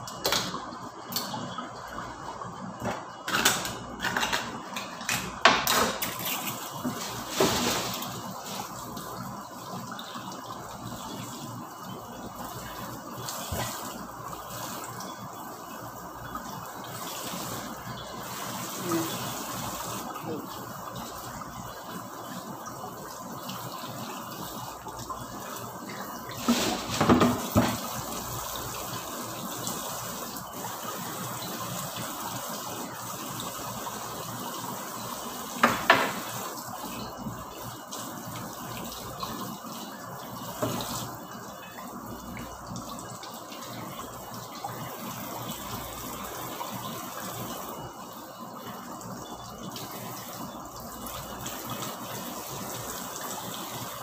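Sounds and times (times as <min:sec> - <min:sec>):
tap running into sink: 0:26.3 - 0:28.1, 0:35.5 - 0:36.6, 0:40.5 - 0:41.1.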